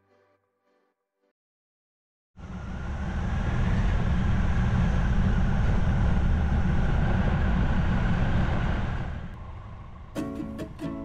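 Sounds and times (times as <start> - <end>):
road noise: 2.4 - 11.0.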